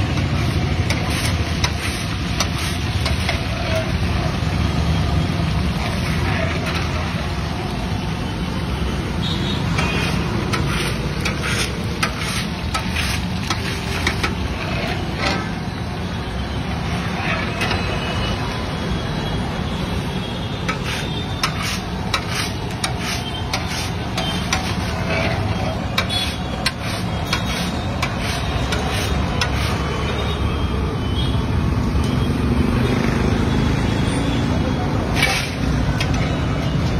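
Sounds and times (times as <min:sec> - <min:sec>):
food frying in hot oil: 0:00.0 - 0:18.9, 0:20.7 - 0:29.8
low rumble of street traffic: 0:00.0 - 0:36.9
metal skimmer scraping pan: 0:00.1 - 0:04.3, 0:05.7 - 0:07.2, 0:09.7 - 0:15.8, 0:16.9 - 0:18.2, 0:20.7 - 0:29.8.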